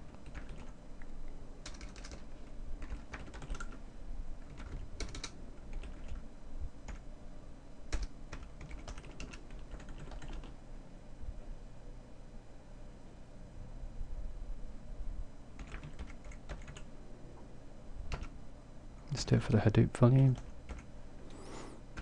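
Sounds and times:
typing on computer keyboard: 0.2 - 0.8, 1.6 - 3.8, 4.4 - 6.2, 7.9 - 10.6, 15.6 - 16.9, 18.1 - 18.4, 20.4 - 20.9.

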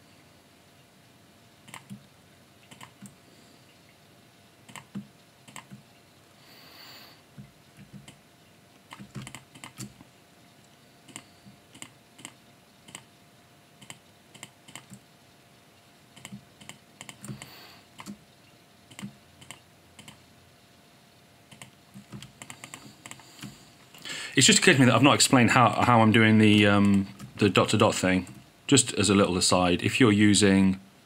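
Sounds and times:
faint steady hum: 0.0 - 31.0
mouse and keyboard clicks: 1.7 - 2.0, 2.7 - 3.2, 4.7 - 5.8, 8.9 - 10.0, 11.1 - 13.1, 13.8 - 15.0, 16.2 - 18.2, 18.9 - 20.2, 21.5 - 23.5.

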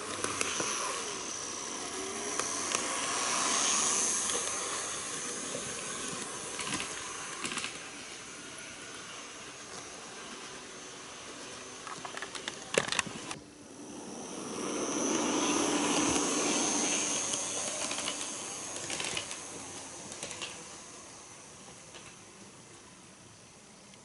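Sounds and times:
model train running past: 0.0 - 23.9
wheels clicking over rail joints: 17.3 - 20.8.

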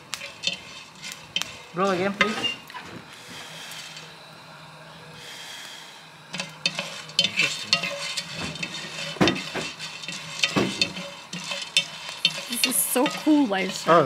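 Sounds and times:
coffee beans rattling: 0.0 - 2.6, 6.3 - 14.0
wooden spatula scraping clay: 6.4 - 13.9.

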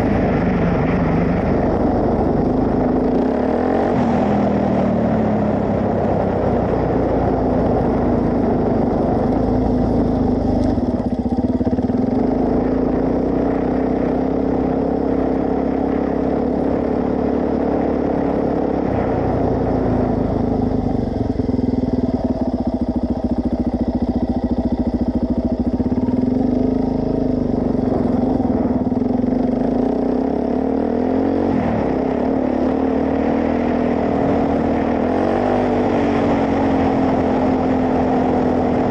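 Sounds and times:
motorcycle engine running: 0.0 - 38.9.

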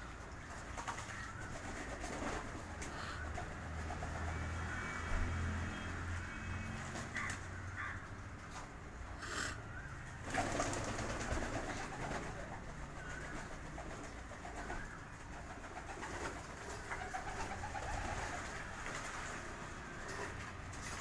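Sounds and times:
pigeons splashing in water: 0.0 - 9.1, 9.8 - 21.0
pigeons cooing: 9.0 - 20.7.

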